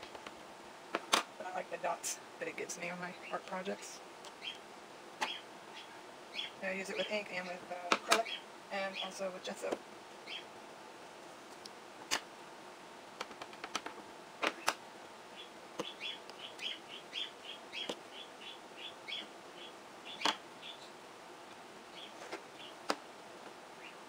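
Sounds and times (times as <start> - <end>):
pet birds chirping: 4.3 - 4.6, 5.2 - 9.2, 10.2 - 10.5, 15.3 - 21.0, 21.9 - 22.8, 23.8 - 24.0
plastic pegboard clicks and taps: 13.2 - 14.8.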